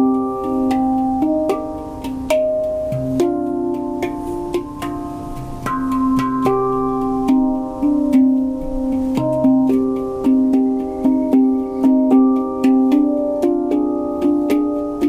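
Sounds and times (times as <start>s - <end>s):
handpan notes: 0.0s - 15.0s.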